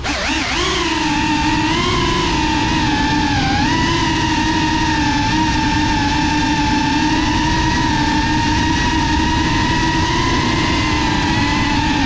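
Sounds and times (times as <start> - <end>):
drone motors whining: 0.0 - 12.0.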